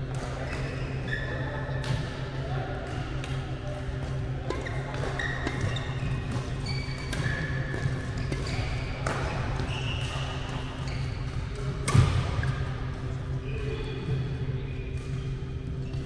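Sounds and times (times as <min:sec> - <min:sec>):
steady low hum: 0:00.0 - 0:16.0
shoes squeaking on court: 0:04.2 - 0:12.6
racket striking shuttlecock: 0:11.8 - 0:12.2.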